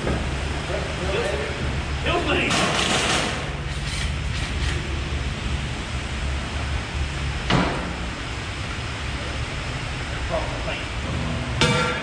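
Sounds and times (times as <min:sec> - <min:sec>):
low hum: 0:05.0 - 0:12.0.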